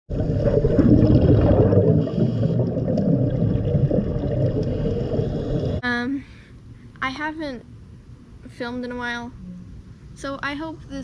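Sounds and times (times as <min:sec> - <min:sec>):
underwater rumble and rush: 0:00.1 - 0:05.8.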